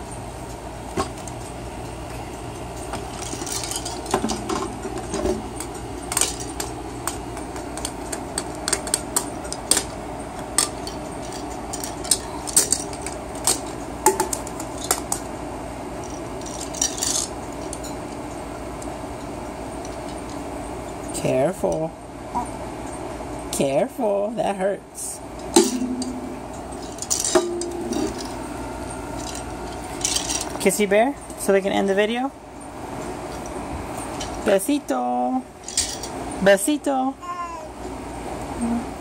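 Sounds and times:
toys clattering and rattling: 2.8 - 15.3, 16.0 - 17.9, 25.5 - 28.4, 29.1 - 30.8, 34.1 - 34.6, 35.6 - 36.2.

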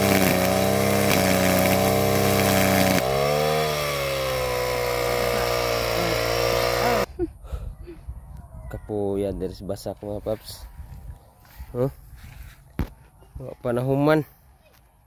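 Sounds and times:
brush cutter engine buzzing: 0.0 - 7.1.

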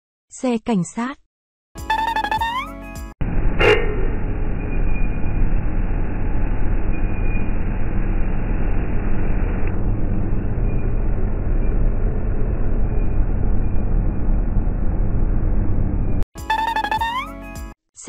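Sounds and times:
truck driving past: 3.2 - 16.2.

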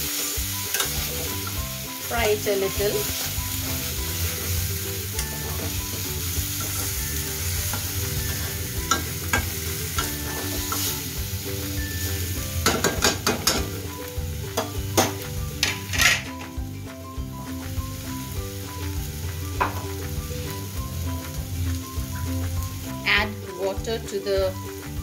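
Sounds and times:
food sizzling in a pan: 0.0 - 25.0
spatula knocking and scraping pan: 5.2 - 11.0, 12.6 - 13.8, 14.5 - 16.5, 19.6 - 20.2.

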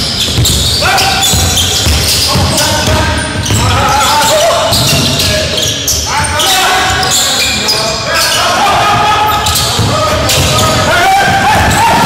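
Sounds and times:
sneakers squeaking: 0.0 - 12.0
basketball bouncing on hardwood: 0.2 - 3.8.

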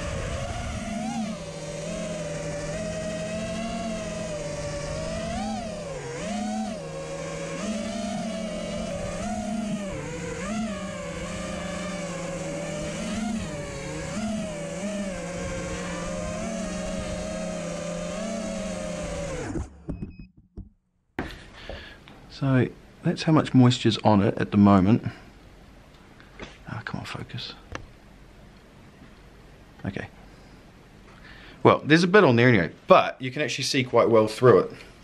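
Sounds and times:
drone motors buzzing whine: 0.0 - 20.3.

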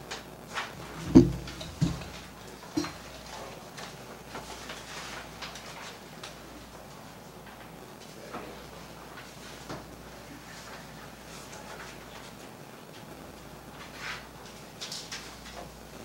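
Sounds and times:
paper rustling: 0.5 - 6.7, 13.8 - 15.8
sharp knocks on table: 1.0 - 2.1.

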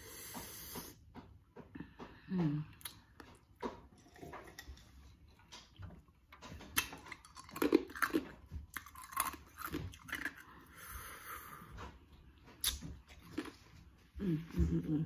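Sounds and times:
ice crunching between teeth: 6.7 - 10.6.

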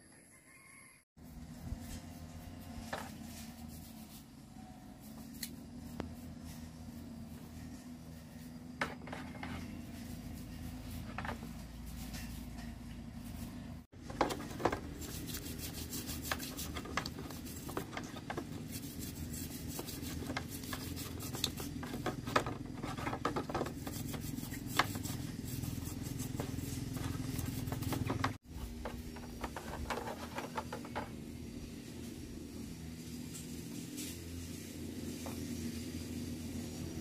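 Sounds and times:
small clicks and scrapes: 5.0 - 31.2.

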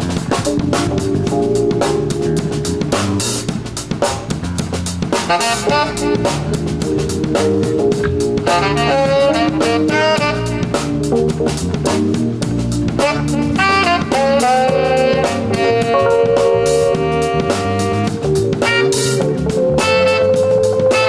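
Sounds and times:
drum kit with cymbals: 0.0 - 21.0
electronic keyboard: 0.0 - 21.0
electric guitar: 5.2 - 21.0.

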